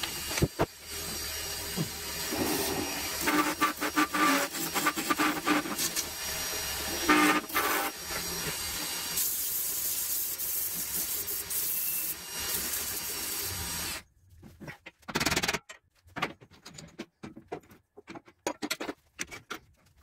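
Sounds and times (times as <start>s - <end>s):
sandpaper hissing on spinning wood: 1.0s - 14.0s.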